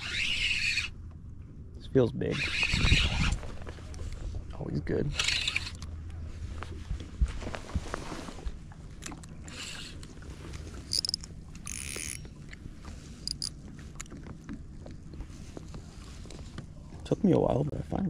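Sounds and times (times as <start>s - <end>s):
fishing reel cranking: 0.0s - 1.0s, 2.3s - 3.3s, 5.1s - 5.8s, 9.5s - 10.1s, 10.8s - 12.2s, 13.2s - 13.5s
steady low hum: 0.0s - 18.0s.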